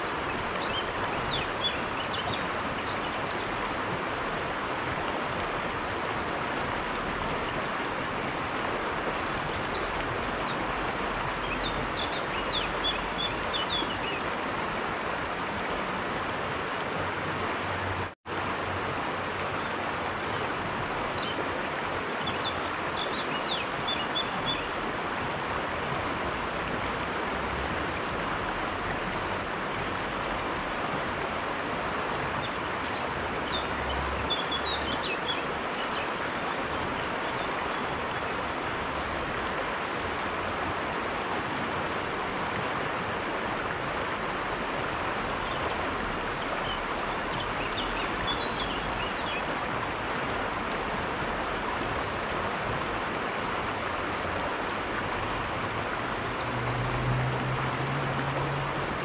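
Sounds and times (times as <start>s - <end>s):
river rushing over stones: 0.0s - 59.0s
small birds chirping: 32.0s - 37.8s, 54.8s - 57.0s.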